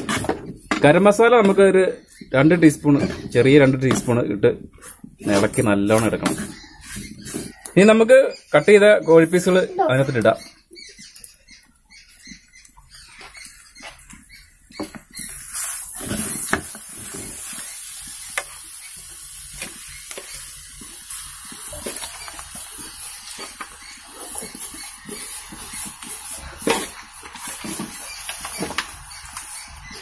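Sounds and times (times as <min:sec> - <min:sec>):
meat sizzling in hot oil: 0:14.7 - 0:30.0.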